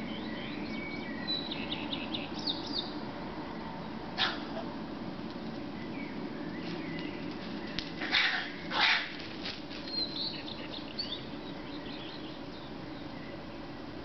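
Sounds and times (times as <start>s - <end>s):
animal screeches: 8.0s - 9.1s.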